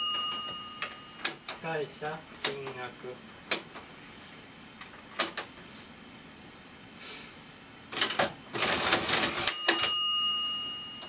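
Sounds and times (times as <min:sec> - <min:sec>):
cash register bell ringing: 0:00.0 - 0:01.4, 0:08.6 - 0:11.0.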